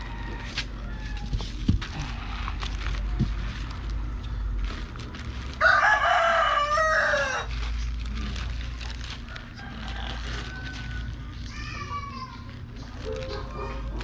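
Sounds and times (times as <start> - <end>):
rooster crowing: 0.0 - 1.5, 5.6 - 7.5, 9.2 - 11.2
plastic bag rustling: 0.0 - 14.0.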